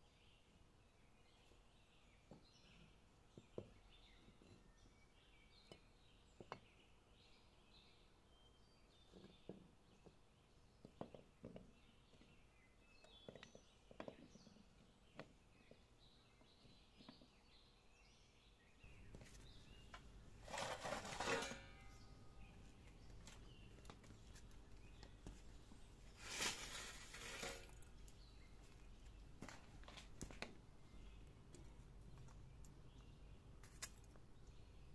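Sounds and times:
birds chirping: 0:00.1 - 0:34.9
charcoal pouring from a bag: 0:26.2 - 0:27.8.

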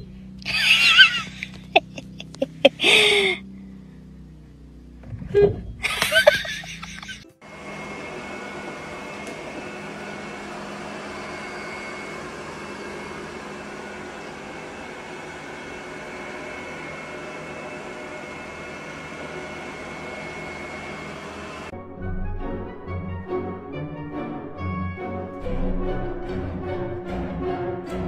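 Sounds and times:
robot vacuum cleaner whirring: 0:07.5 - 0:21.7.

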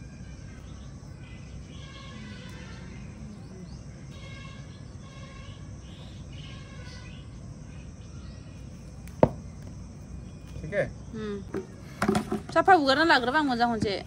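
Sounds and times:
faint high-pitched calls: 0:00.1 - 0:08.7.

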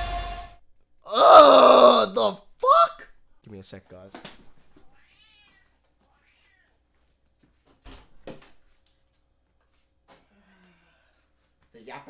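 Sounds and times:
cat meowing: 0:04.9 - 0:06.8.

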